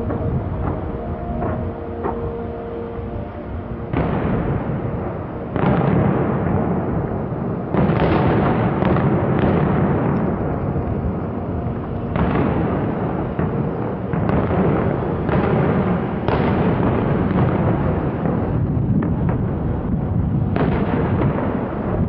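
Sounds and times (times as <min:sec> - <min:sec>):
fireworks bangs and crackle: 0:00.0 - 0:02.5, 0:03.3 - 0:22.0.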